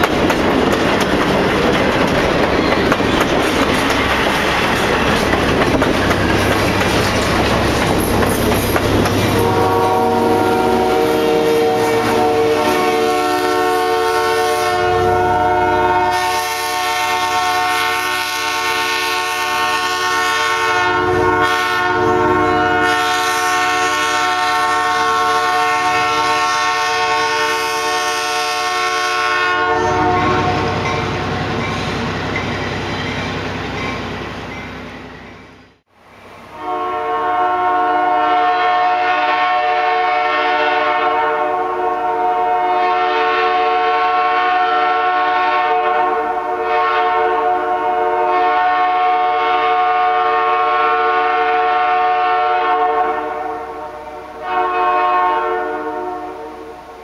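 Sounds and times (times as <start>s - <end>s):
passing train rumble: 0.0s - 57.0s
train horn chord: 9.0s - 31.0s, 36.5s - 56.8s.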